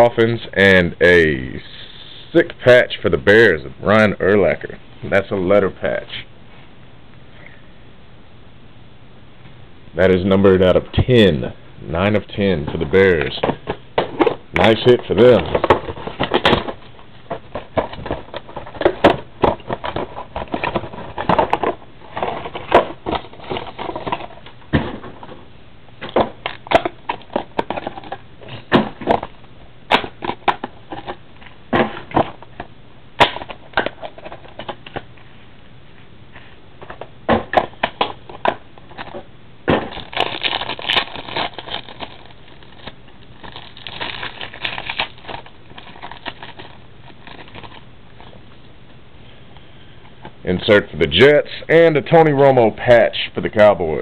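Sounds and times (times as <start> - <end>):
card packaging crinkling: 12.2 - 24.6, 26.0 - 32.6, 37.6 - 48.4
trading cards shuffling: 37.6 - 48.4.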